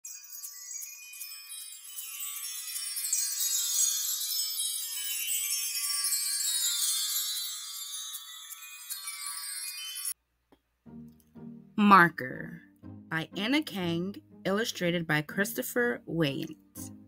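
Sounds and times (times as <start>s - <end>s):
tinkling chimes and jingling bells: 0.0s - 10.2s.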